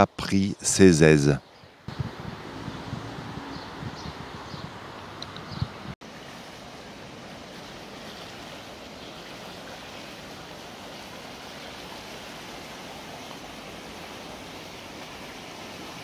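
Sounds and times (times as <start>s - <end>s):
river water rushing: 6.0s - 16.0s.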